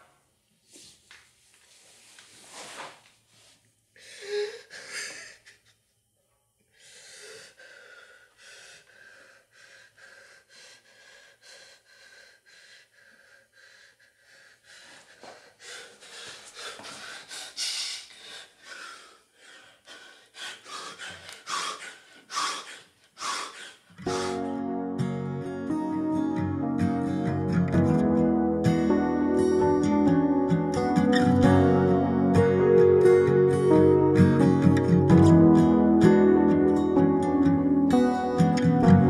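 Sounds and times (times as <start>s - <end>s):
gasping breaths: 4.0s - 5.6s, 6.7s - 24.5s
man sobbing: 4.0s - 5.8s.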